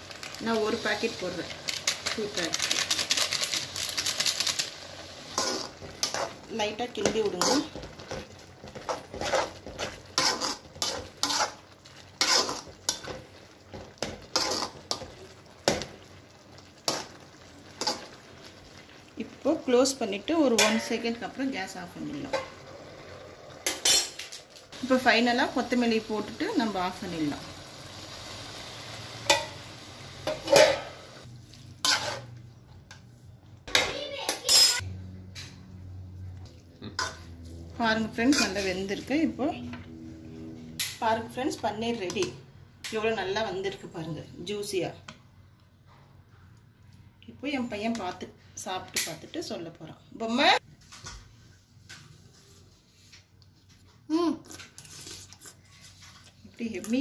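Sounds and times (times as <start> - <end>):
noodles sizzling: 0.0 - 34.9, 36.0 - 44.0
wooden spatula scraping metal pan: 7.0 - 13.2, 14.0 - 15.1, 31.8 - 32.4.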